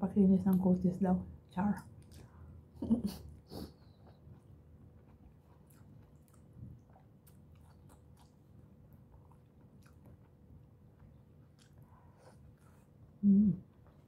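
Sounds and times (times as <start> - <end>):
close chewing: 3.4 - 13.0.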